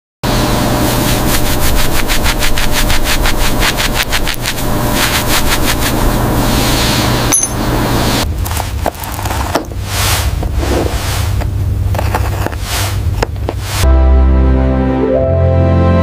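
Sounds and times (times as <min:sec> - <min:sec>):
cloth rubbing chain: 0:01.1 - 0:06.0.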